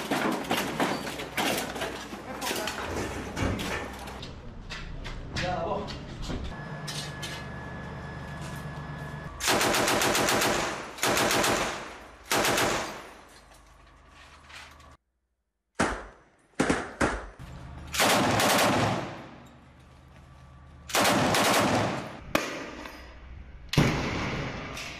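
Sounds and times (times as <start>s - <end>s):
machine gun fire bursts: 9.4s - 13.0s, 18.0s - 19.3s, 20.9s - 22.2s.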